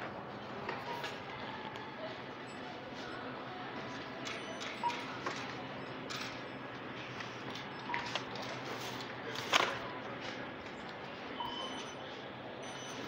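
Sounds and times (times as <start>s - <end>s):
steady background hum: 0.0s - 13.0s
short beeps: 11.4s - 12.0s.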